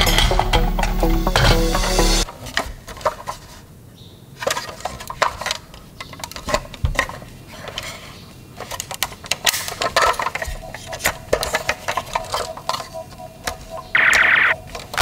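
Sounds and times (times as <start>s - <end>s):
plastic toy cars clicking: 4.4s - 13.6s, 14.6s - 15.0s.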